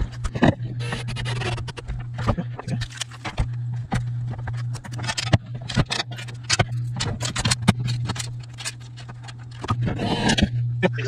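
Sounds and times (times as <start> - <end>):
steady low hum: 0.0 - 11.0
clicks and clatters of tools: 2.2 - 10.5.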